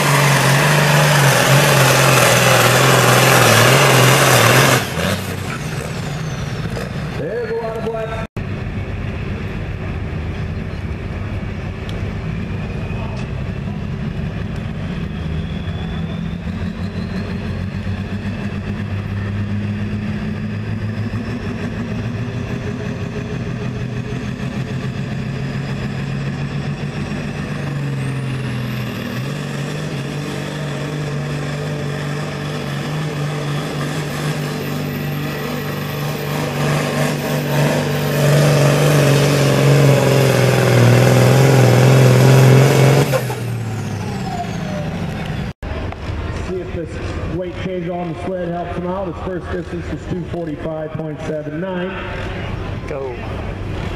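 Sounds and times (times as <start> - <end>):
diesel tractor engine: 0.0 - 53.9.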